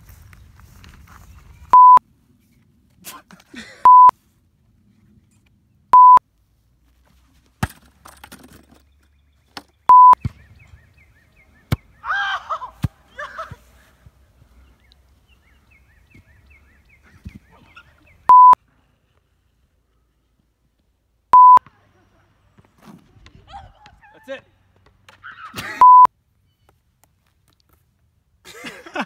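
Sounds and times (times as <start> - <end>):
test-tone beeps: 1.8 - 2.0, 3.9 - 4.1, 6.0 - 6.2, 9.9 - 10.2, 18.3 - 18.6, 21.4 - 21.6, 25.8 - 26.1.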